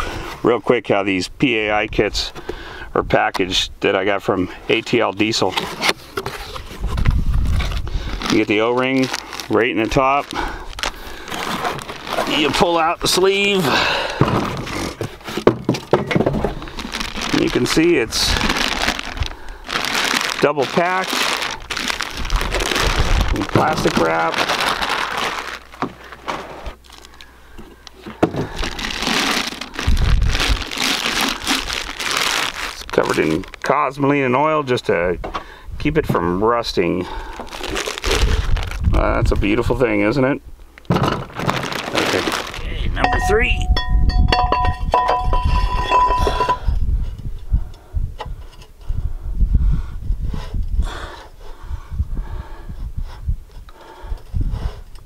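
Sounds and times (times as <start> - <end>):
plastic wrap crinkling: 5.6 - 13.7, 16.2 - 27.3, 27.9 - 34.0, 37.2 - 39.0, 41.2 - 42.7
low rumble: 29.8 - 30.8
metal liner ringing: 43.0 - 46.6
metal clinks and scrapes: 43.0 - 46.8.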